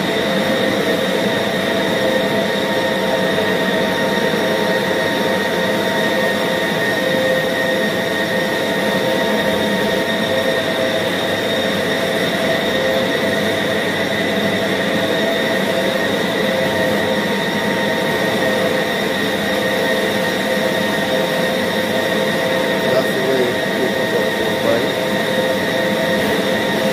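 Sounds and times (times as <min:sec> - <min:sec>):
band saw whining: 0:12.4 - 0:26.9.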